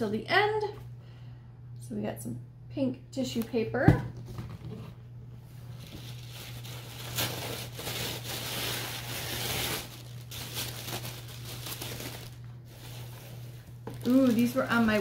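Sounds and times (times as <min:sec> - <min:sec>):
tissue paper rustling: 0:05.6 - 0:15.0.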